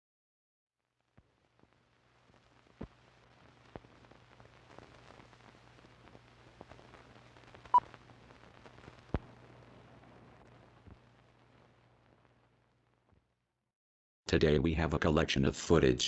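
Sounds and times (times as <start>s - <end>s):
film crackle and clicks: 1.0s - 13.2s.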